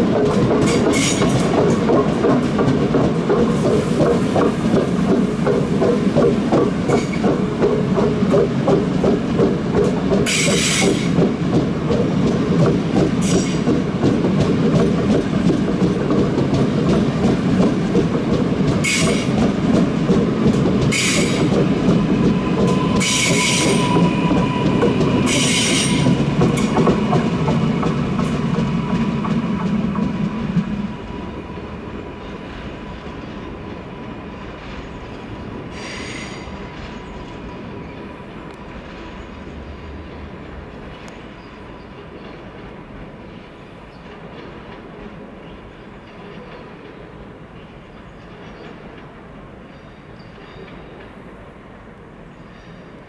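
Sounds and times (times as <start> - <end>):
train wheels rumbling on rails: 0.0 - 53.0
short high hisses: 35.7 - 36.5.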